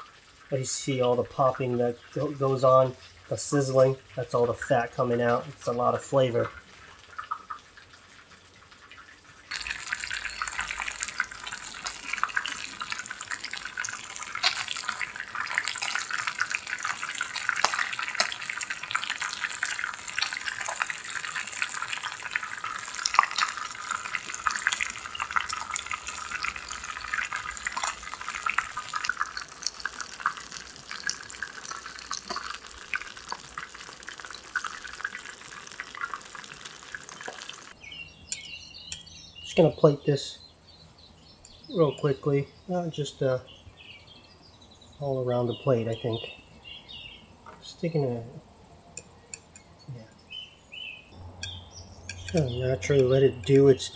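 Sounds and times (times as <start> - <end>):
fish sizzling in a hot pan: 7.0 - 37.8.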